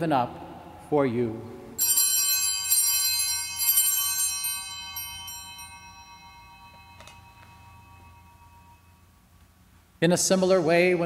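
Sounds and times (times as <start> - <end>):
altar bells ringing: 1.8 - 9.4.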